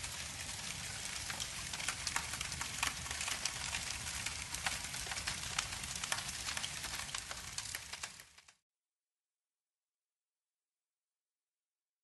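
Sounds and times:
fire crackling: 0.0s - 8.5s
steady rain: 0.0s - 8.5s.

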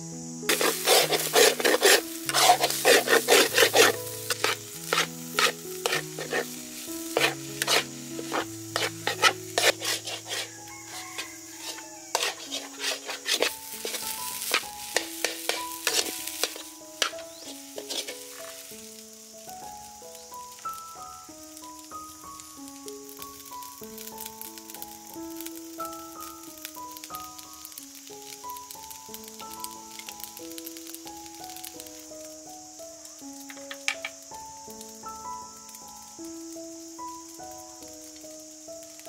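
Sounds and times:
rice sizzling in pan: 0.0s - 39.0s
metal ladle scraping wok: 0.5s - 18.7s.

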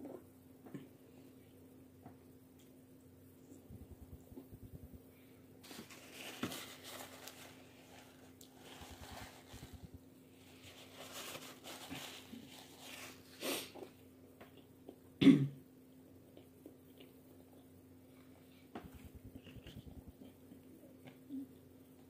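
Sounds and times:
faint steady hum: 0.0s - 22.0s
chewing and mouth noises: 15.9s - 18.4s.

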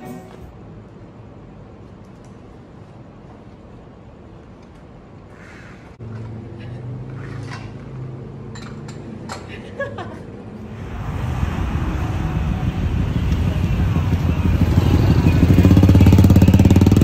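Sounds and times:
street traffic engines: 0.0s - 17.0s
low hum: 10.6s - 16.9s.

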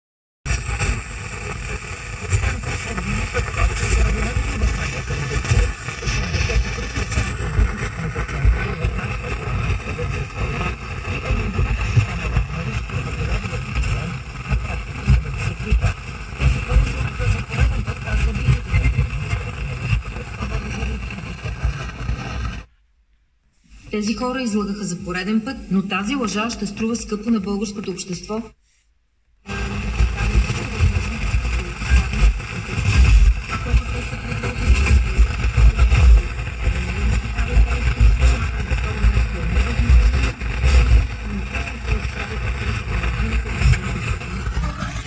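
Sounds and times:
faint radio programme audio: 0.5s - 28.7s, 29.4s - 45.0s
radio static hiss: 0.5s - 45.0s.

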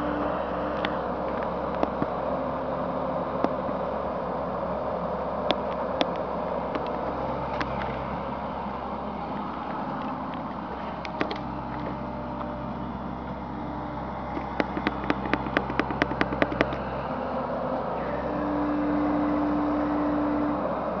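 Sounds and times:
engine whine under load: 0.0s - 21.0s
excavator engine running: 0.0s - 21.0s
rapid sharp clicks: 14.3s - 17.0s.

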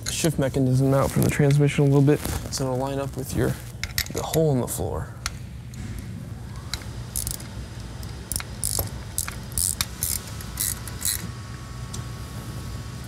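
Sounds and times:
metal parts clicking and scraping: 6.7s - 11.3s.

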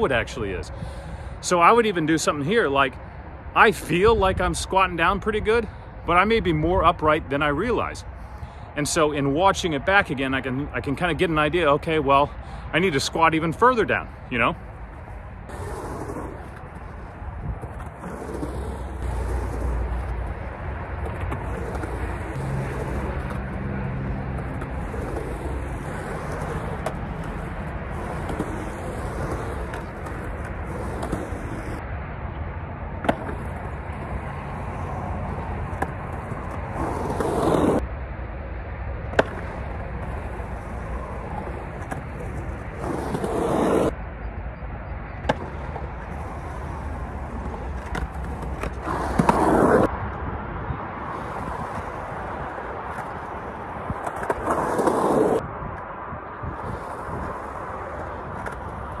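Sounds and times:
skateboard wheels rolling on concrete: 0.0s - 59.0s
skateboard clacks: 14.9s - 31.8s, 39.1s - 44.0s, 45.2s - 49.9s.

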